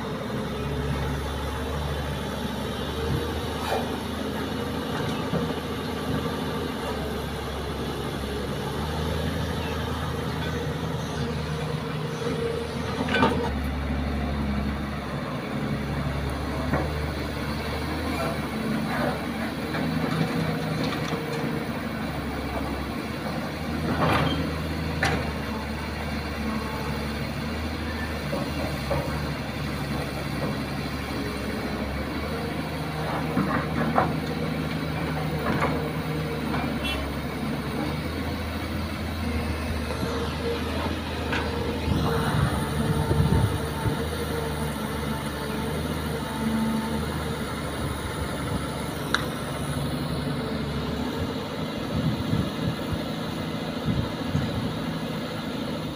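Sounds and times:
excavator diesel engine running: 0:00.0 - 0:55.9.

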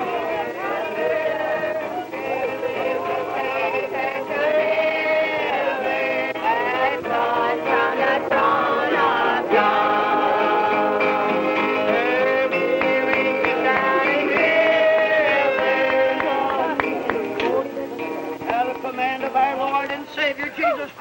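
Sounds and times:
group singing a hymn: 0:00.0 - 0:19.4
acoustic guitar: 0:00.0 - 0:21.0.

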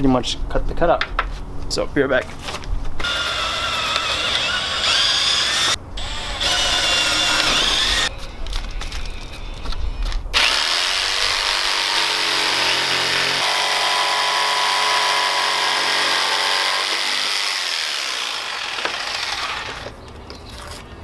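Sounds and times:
power drill boring wood: 0:03.0 - 0:08.1, 0:10.4 - 0:19.9.

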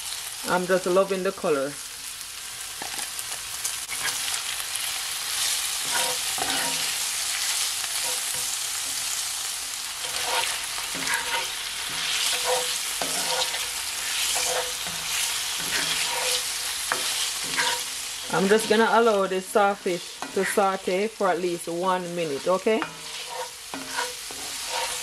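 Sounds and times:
fish and vegetables sizzling: 0:00.0 - 0:25.0
spatula scraping a pan: 0:03.9 - 0:04.4, 0:05.4 - 0:09.2, 0:10.0 - 0:25.0.

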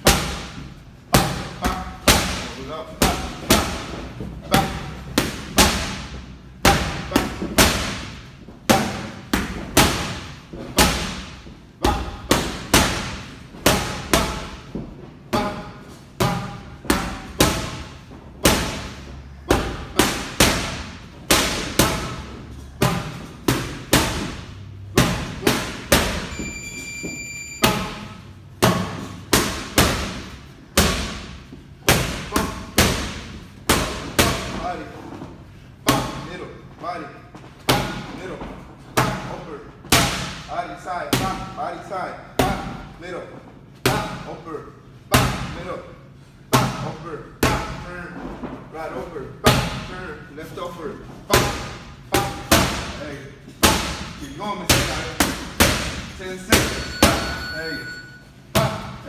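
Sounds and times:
boxing gloves slapping mitts: 0:00.0 - 0:15.5.

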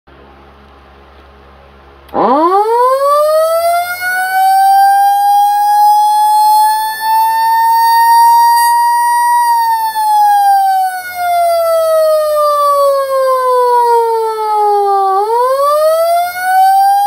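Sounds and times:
siren wailing: 0:02.1 - 0:17.0.

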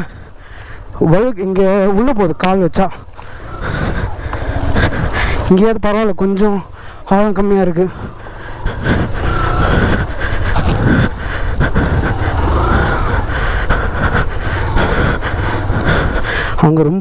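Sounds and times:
motorcycle engine running: 0:00.0 - 0:16.6
motorcycle riding through water and mud: 0:08.1 - 0:13.6.

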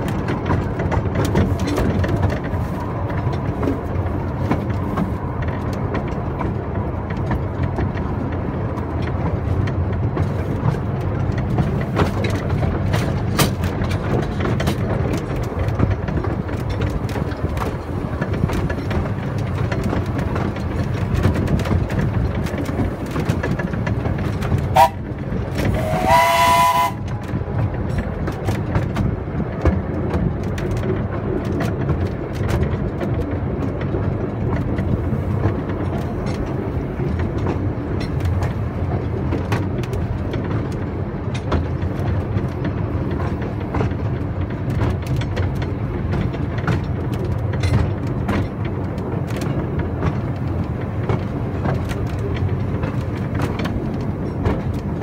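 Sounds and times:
train running on track: 0:00.0 - 0:55.0
wheels clicking and knocking: 0:00.0 - 0:55.0
steam locomotive whistle: 0:24.7 - 0:25.0, 0:25.7 - 0:27.2.

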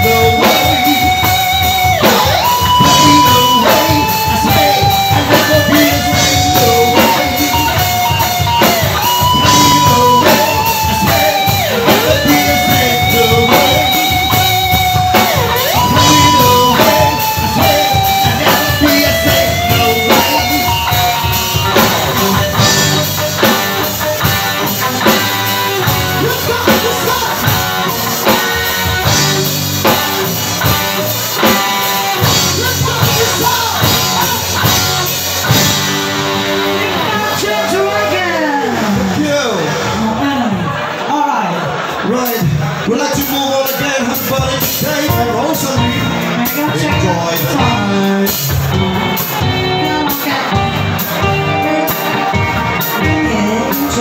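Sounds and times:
wavering melody line: 0:00.0 - 0:30.4
electric guitar: 0:00.0 - 0:41.1, 0:41.8 - 0:54.0
drum kit: 0:00.0 - 0:54.0.

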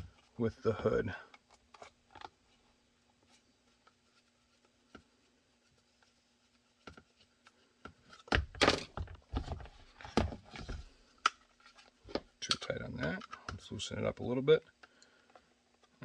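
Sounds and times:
towel rustling and rubbing: 0:01.9 - 0:07.8.

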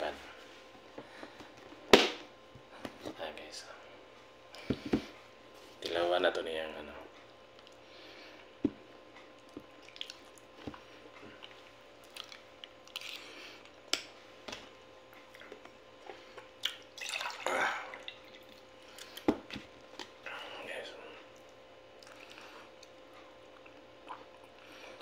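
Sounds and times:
chewing: 0:09.2 - 0:10.6, 0:11.2 - 0:13.8, 0:15.1 - 0:16.9, 0:21.3 - 0:24.6
water pouring into a glass: 0:16.9 - 0:18.5.

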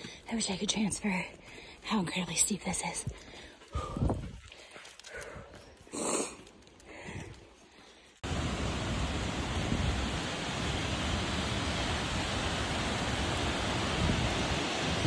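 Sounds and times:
waterfall rushing: 0:08.3 - 0:15.0.

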